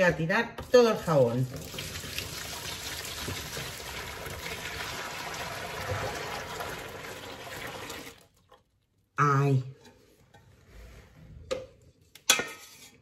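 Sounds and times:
liquid pouring into plastic basin: 1.4 - 8.7.

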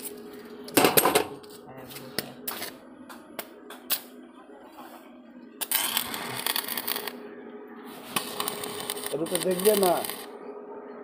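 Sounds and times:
welding electrode snaps: 3.4 - 4.1, 5.6 - 7.2, 8.0 - 10.3
welding arc crackling: 5.6 - 7.2, 7.9 - 10.3.

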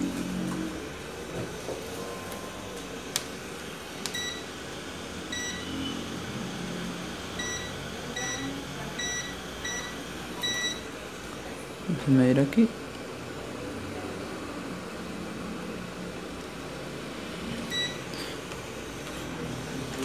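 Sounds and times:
multimeter short high beeps: 5.3 - 6.0, 7.4 - 10.9, 17.7 - 18.0.

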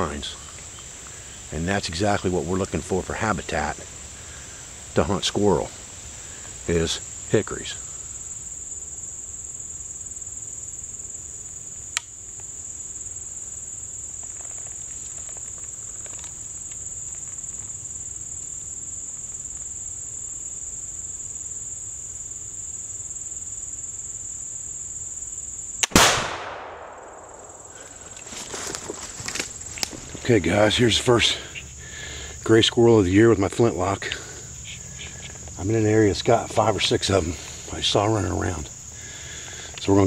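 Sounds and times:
insects chirping: 0.0 - 40.0
gunshot: 25.8 - 28.0.

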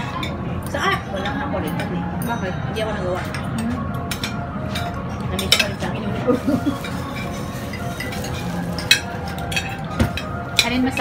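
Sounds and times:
cutlery clinking on plates: 3.1 - 11.0.

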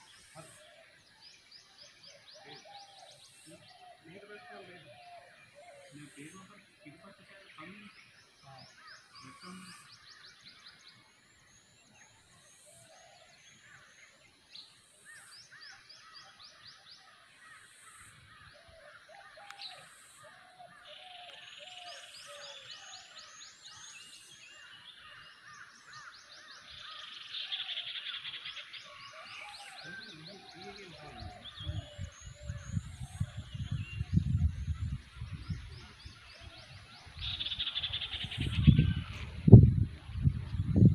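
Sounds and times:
birds chirping: 0.0 - 40.9
lower bird calls: 0.0 - 40.9
low rumble on microphone: 31.5 - 36.8, 38.2 - 40.9.

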